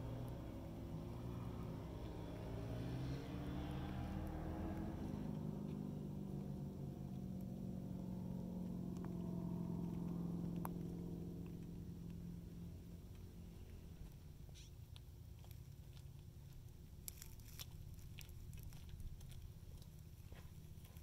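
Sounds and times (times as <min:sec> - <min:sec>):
engine idling: 0:04.8 - 0:14.9.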